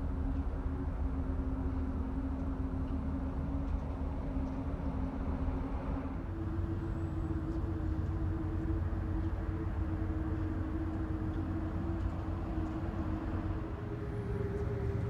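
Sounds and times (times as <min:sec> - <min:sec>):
vent pipes droning hum: 0:06.2 - 0:15.0
deep rumble: 0:06.3 - 0:15.0.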